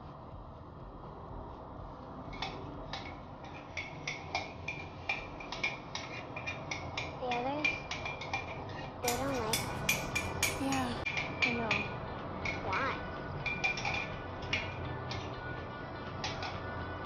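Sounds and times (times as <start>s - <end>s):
metal spoon clinking on tin: 3.5s - 12.6s.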